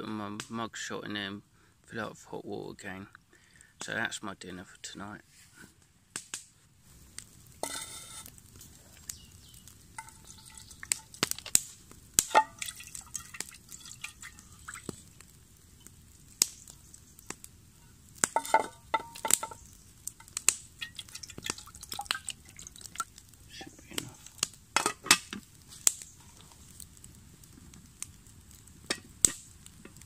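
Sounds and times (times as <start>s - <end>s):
metal saucepan clinking: 10.0s - 11.0s, 12.3s - 14.4s, 18.4s - 19.6s
stones knocking on metal rods: 10.0s - 11.5s, 12.2s - 12.7s, 18.2s - 19.6s
water pouring into a pan: 10.0s - 15.2s, 18.4s - 23.3s.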